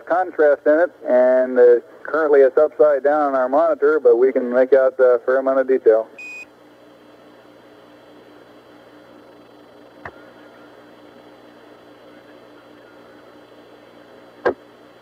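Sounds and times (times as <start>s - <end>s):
faint hum: 0.0s - 15.0s
radio static hiss: 0.0s - 15.0s
short high beep: 6.2s - 6.5s.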